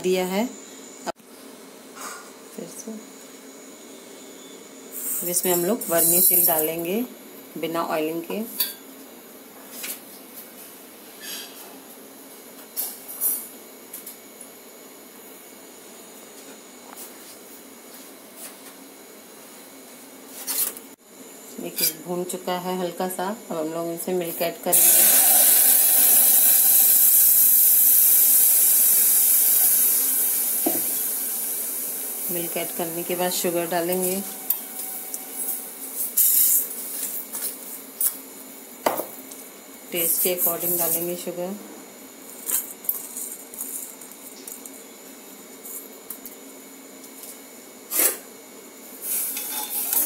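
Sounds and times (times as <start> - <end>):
milk hissing in hot pan: 24.7 - 33.4.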